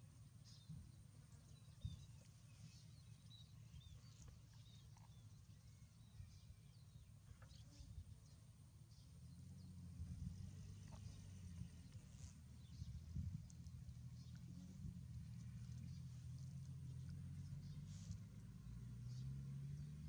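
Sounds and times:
low rumble: 0:09.0 - 0:20.0.

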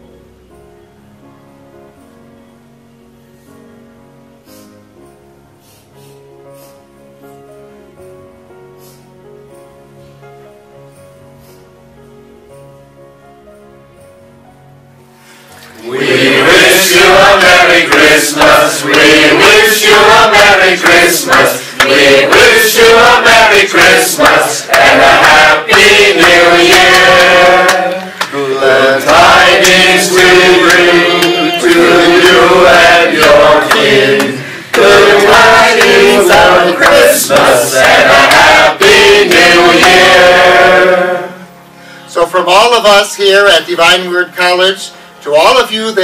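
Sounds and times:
group of people singing: 0:15.8 - 0:41.5.

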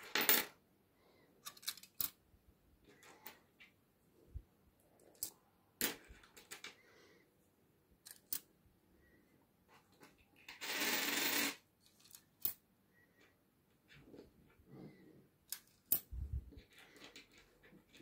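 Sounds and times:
coins clicking onto a heap: 0:00.0 - 0:00.5, 0:10.5 - 0:12.6.

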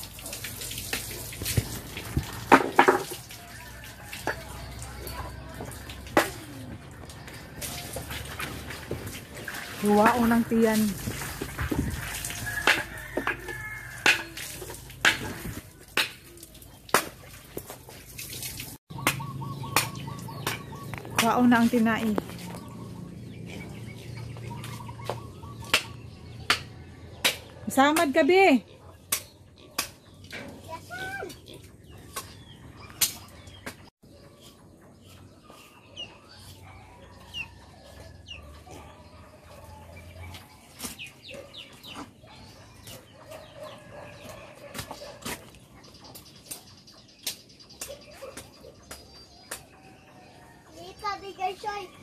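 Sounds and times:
water trickling and splashing: 0:00.0 - 0:25.5
chickens clucking: 0:18.9 - 0:27.6, 0:31.4 - 0:52.0.

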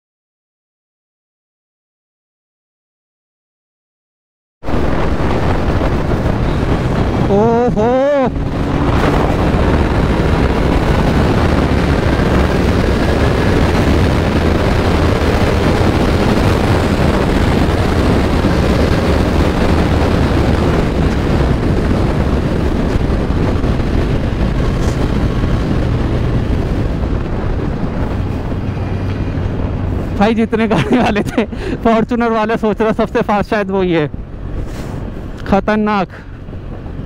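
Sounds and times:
wind rush on microphone: 0:04.6 - 0:37.0
motorcycle engine at high speed: 0:04.7 - 0:31.2, 0:36.3 - 0:37.0.

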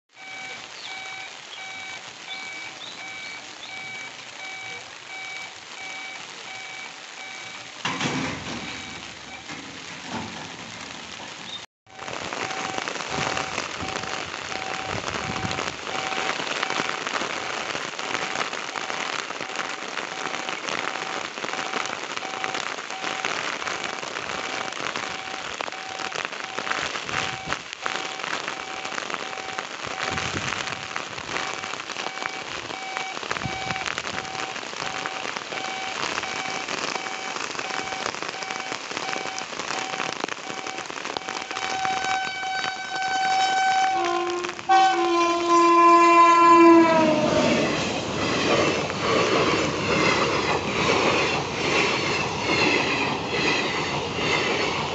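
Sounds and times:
heavy rain pouring: 0:00.1 - 0:54.9
faint repeating beep: 0:00.2 - 0:07.8, 0:08.5 - 0:09.5, 0:11.9 - 0:16.9, 0:18.1 - 0:23.3, 0:24.4 - 0:42.1.

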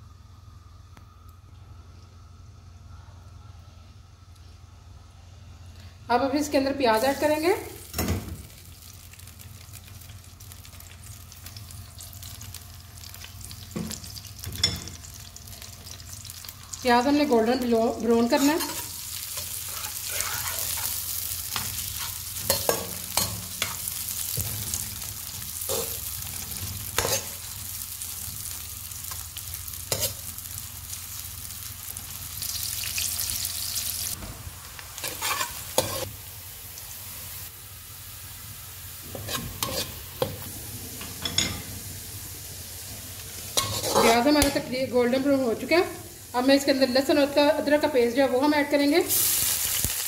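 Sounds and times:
onions sizzling in hot oil: 0:06.4 - 0:50.0
metal spoon scraping a pan: 0:18.3 - 0:24.8, 0:25.7 - 0:27.4, 0:29.9 - 0:30.2, 0:35.0 - 0:36.1, 0:39.1 - 0:40.4, 0:43.6 - 0:44.5.

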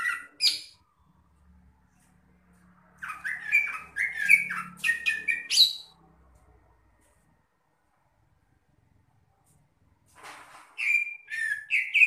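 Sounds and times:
bird singing: 0:00.0 - 0:01.1, 0:03.0 - 0:06.0, 0:10.8 - 0:12.0.

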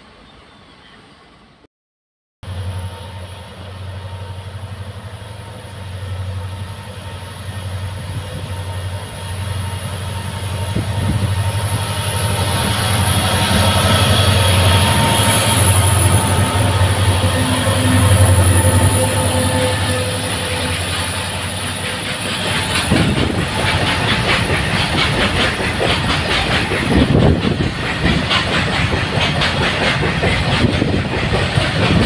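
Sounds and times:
train wheel and rail noise: 0:00.0 - 0:01.7, 0:02.4 - 0:32.0
locomotive engine drone: 0:02.4 - 0:27.7.

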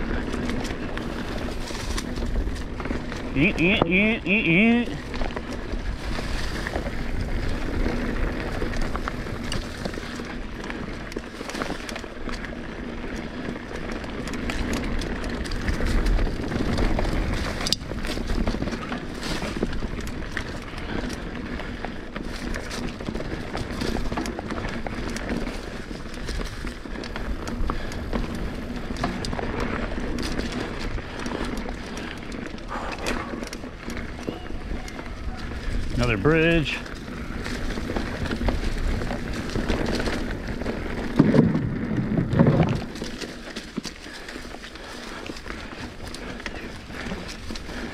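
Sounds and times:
bike rattling: 0:00.0 - 0:47.9
tyre noise on dirt trail: 0:00.0 - 0:47.9.

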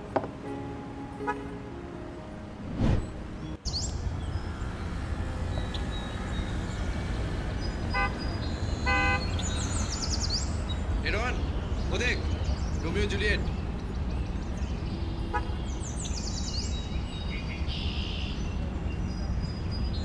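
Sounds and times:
low traffic rumble: 0:00.0 - 0:20.0
vehicle horn honking: 0:01.2 - 0:01.5, 0:08.0 - 0:08.2, 0:08.8 - 0:09.4
brief whoosh: 0:02.6 - 0:03.5
birds chirping: 0:02.8 - 0:20.0.

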